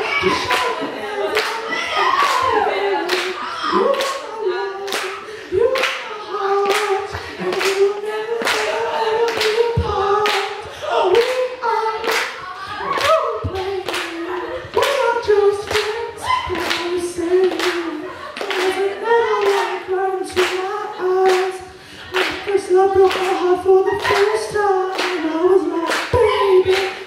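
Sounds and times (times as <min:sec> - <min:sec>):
boy singing into a microphone: 0:00.0 - 0:27.0
hand claps: 0:04.9 - 0:05.2, 0:05.8 - 0:08.7, 0:12.0 - 0:14.2, 0:16.6 - 0:17.8, 0:20.4 - 0:21.5, 0:22.1 - 0:25.3, 0:25.9 - 0:27.0.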